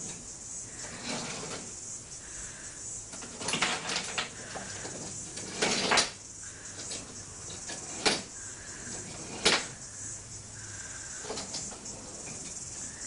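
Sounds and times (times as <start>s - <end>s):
wooden toy trains clattering: 3.1s - 9.8s, 11.2s - 12.9s.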